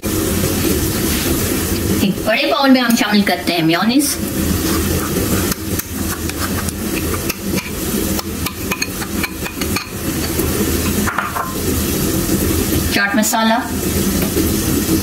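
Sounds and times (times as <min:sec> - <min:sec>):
bowls knocking and tapping: 0:06.3 - 0:11.6.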